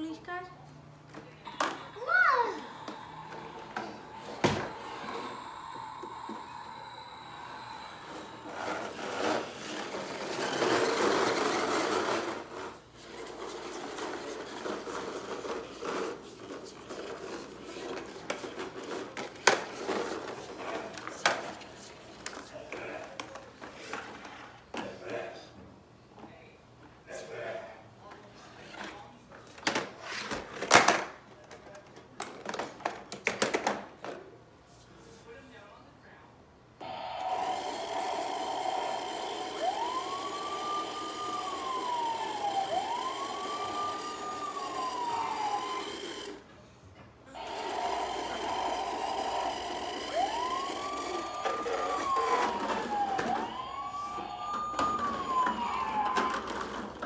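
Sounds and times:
toy wheels rolling on wooden floor: 2.6 - 24.5, 37.1 - 46.5, 47.4 - 57.0
plastic toys clattering on wooden floor: 8.6 - 21.6, 29.6 - 34.2, 54.5 - 57.0.

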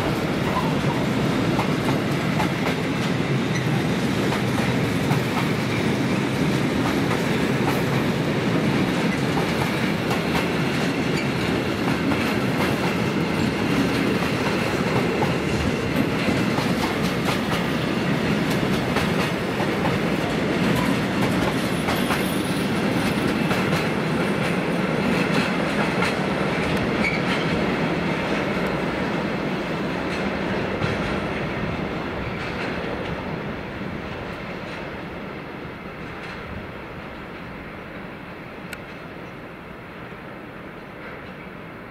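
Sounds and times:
freight train wheels on rails: 0.0 - 41.9.

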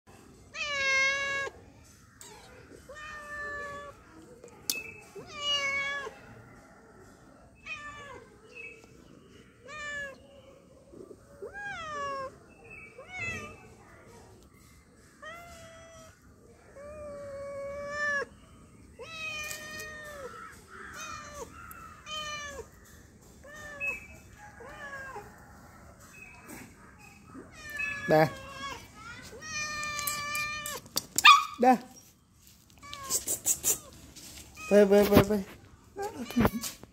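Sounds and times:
cat meowing: 5.2 - 6.2, 9.6 - 10.2, 11.4 - 12.4, 19.0 - 22.8, 23.4 - 25.4, 36.0 - 36.8.

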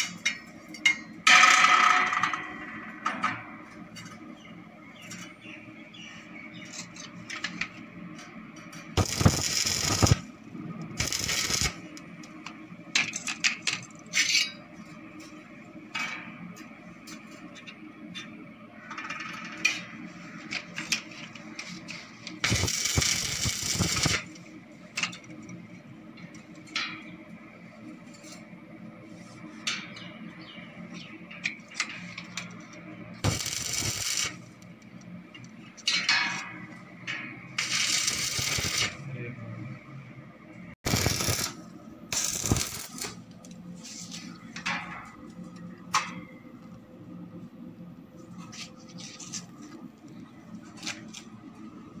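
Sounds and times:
arc welding sizzle: 0.0 - 0.6, 8.8 - 14.5, 20.1 - 25.5, 31.4 - 36.0, 37.5 - 39.1, 40.9 - 44.6.

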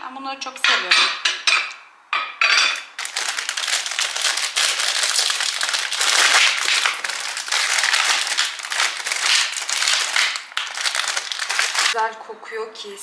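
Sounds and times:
plastic wrappers crinkling: 2.6 - 12.0.

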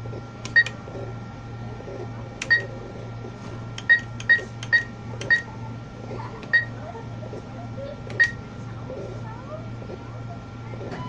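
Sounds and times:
steady low hum: 0.0 - 11.0
keypad beeping: 0.4 - 0.8, 2.4 - 2.8, 3.8 - 5.5, 6.4 - 6.8, 8.1 - 8.4.

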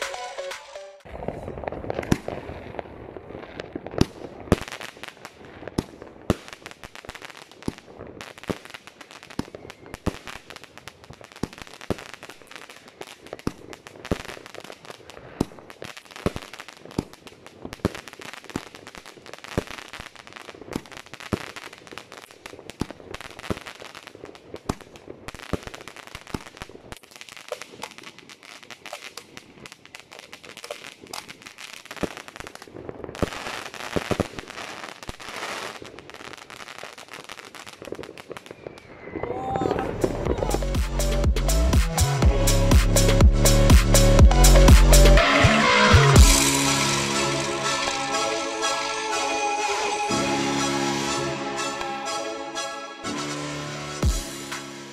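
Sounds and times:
firework stars crackling: 0.0 - 54.9
firework shots popping: 0.6 - 19.9, 20.5 - 39.0.

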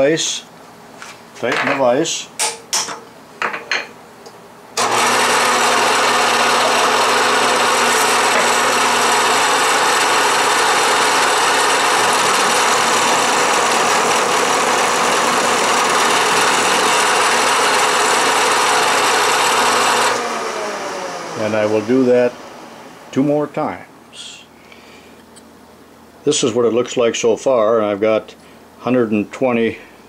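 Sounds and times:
milling machine cutting metal: 4.8 - 22.0.

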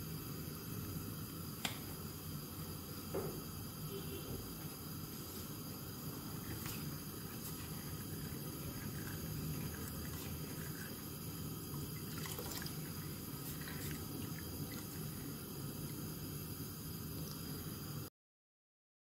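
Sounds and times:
steady low hiss: 0.0 - 18.1
milk swishing: 6.2 - 15.4.

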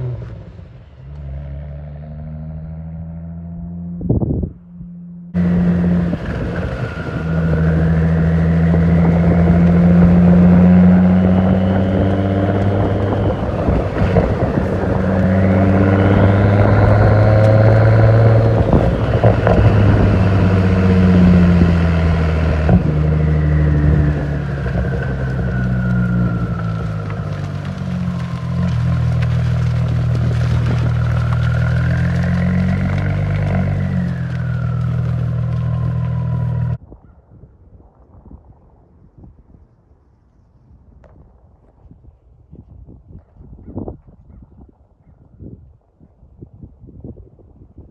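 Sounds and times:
turbocharged car engine revving: 4.8 - 36.8.

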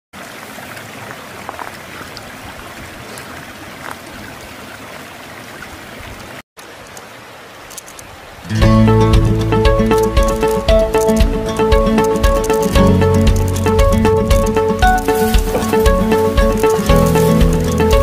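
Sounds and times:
plucked-string music: 8.5 - 18.0.

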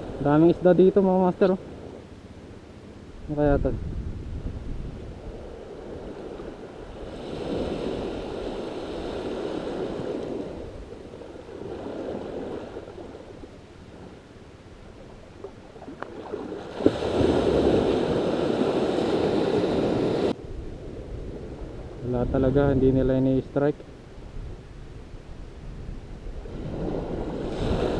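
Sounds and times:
waves washing on sandy beach: 5.1 - 14.3, 15.3 - 22.0, 26.3 - 27.9.

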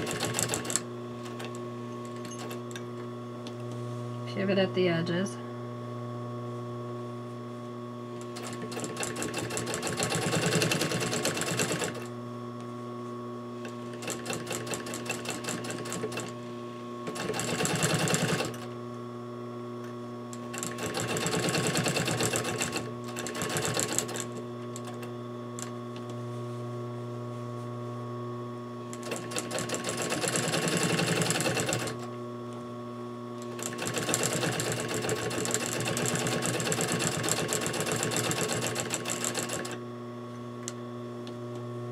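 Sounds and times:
sewing machine stitching: 0.0 - 1.5, 8.3 - 12.1, 17.1 - 18.7, 20.5 - 24.4, 29.0 - 32.0, 33.5 - 39.8
steady hum: 2.7 - 33.6.

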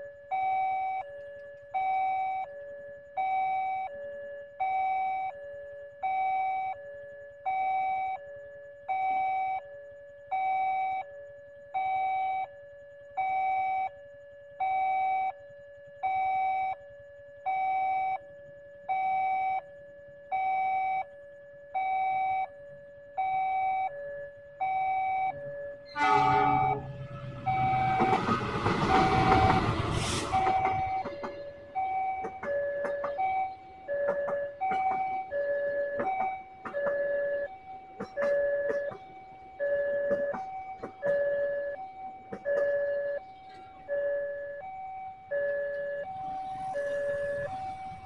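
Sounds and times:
train horn: 25.9 - 31.6
train rolling past: 25.9 - 33.2, 46.2 - 48.0.

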